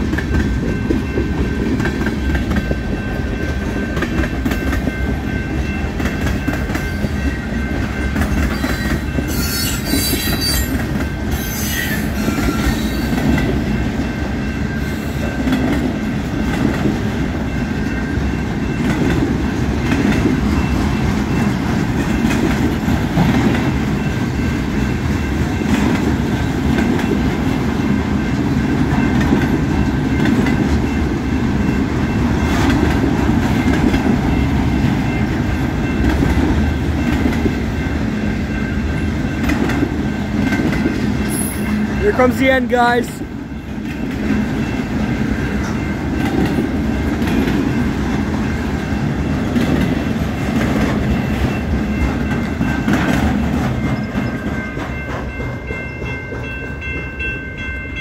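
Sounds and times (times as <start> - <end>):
train wheels clattering on rails: 0.0 - 58.0
high-pitched wheel squeal: 8.5 - 13.2.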